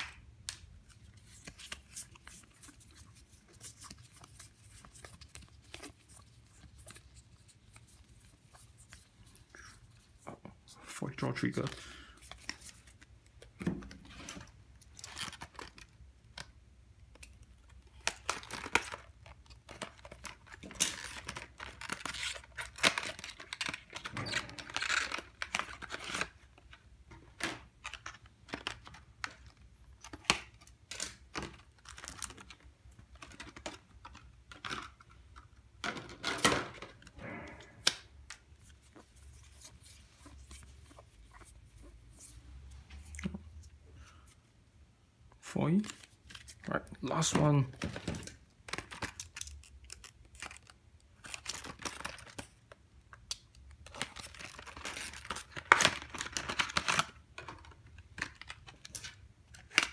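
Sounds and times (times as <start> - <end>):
plastic wrapping rustling and tearing: 0.8 - 10.3, 14.0 - 35.3, 45.7 - 59.9.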